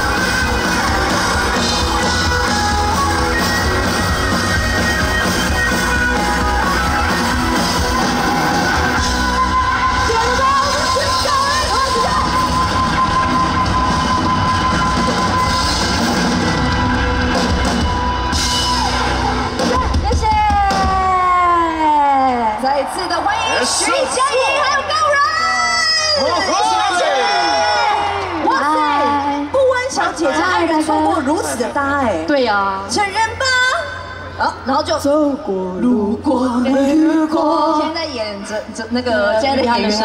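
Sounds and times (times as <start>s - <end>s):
live rock band playing: 0.0s - 21.8s
crowd noise: 0.0s - 40.0s
drums: 0.0s - 40.0s.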